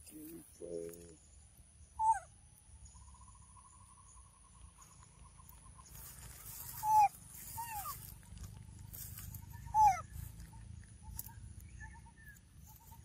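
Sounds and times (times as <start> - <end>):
faint insect drone: 0.0 - 13.0
baby monkey high calls: 2.0 - 2.4, 6.4 - 8.2, 9.0 - 12.3.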